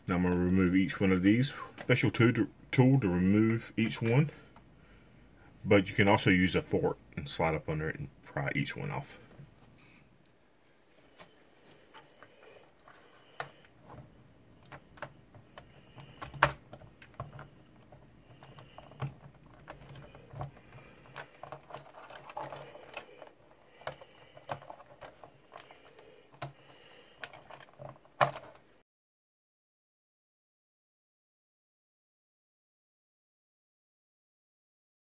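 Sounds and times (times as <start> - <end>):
metal fork scraping on plastic: 15.6 - 28.6.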